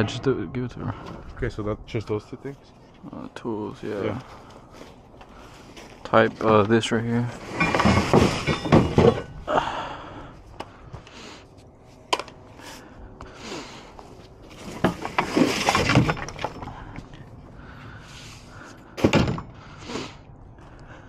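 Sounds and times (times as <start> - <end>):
debris clattering and scraping: 5.4 - 9.5, 14.4 - 17.3.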